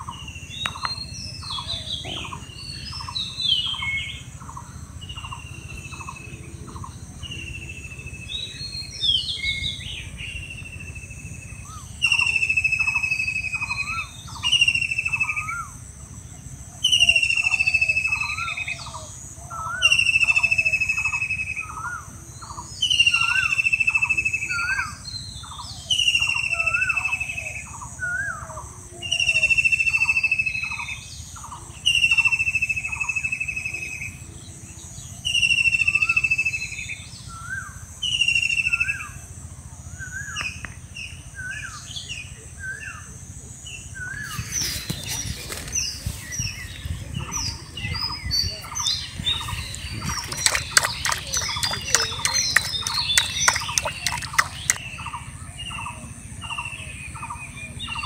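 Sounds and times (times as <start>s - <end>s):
high insect drone: 0.0s - 58.0s
quick short bird chirps: 49.2s - 54.9s.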